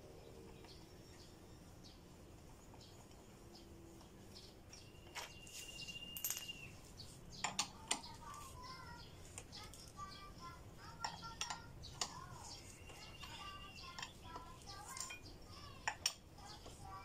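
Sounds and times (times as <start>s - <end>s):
faint bird chirps: 2.7s - 15.8s.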